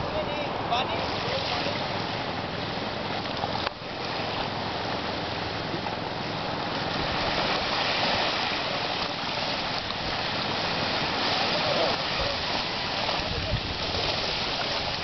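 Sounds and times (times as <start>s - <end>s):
small waves washing onto beach: 0.0s - 15.0s.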